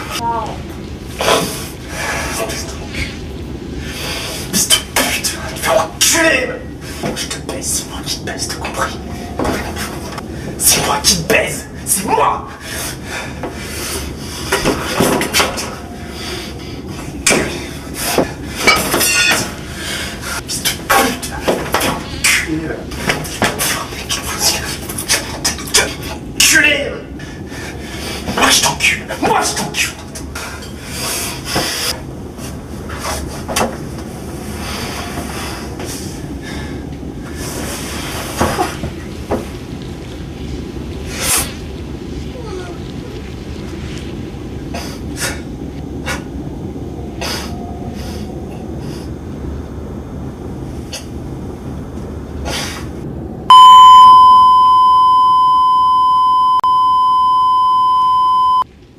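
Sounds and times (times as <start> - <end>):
man breathing heavily: 27.2 - 28.4
low hum: 31.9 - 58.9.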